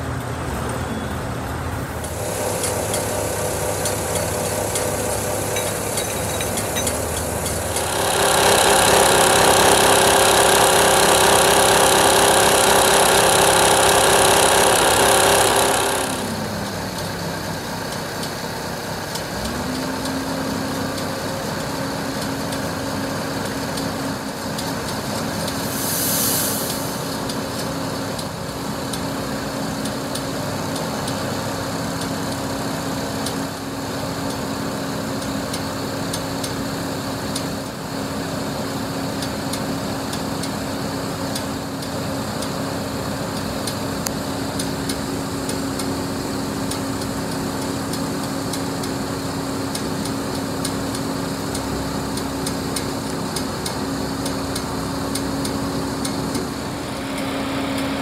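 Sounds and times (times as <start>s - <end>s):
truck diesel engine running: 1.7s - 25.6s
brief hiss: 25.6s - 27.1s.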